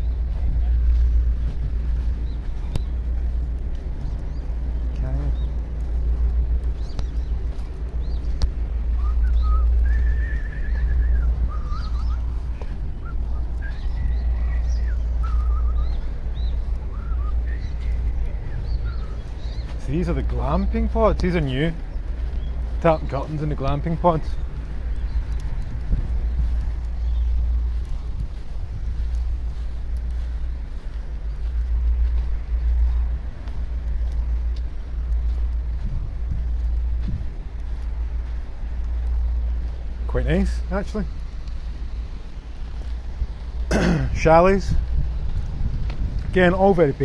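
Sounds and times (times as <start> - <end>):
steady low rumble: 0.0 - 47.0
faint ticks: 0.1 - 46.8
bird warbling whistle and trill: 8.9 - 19.8.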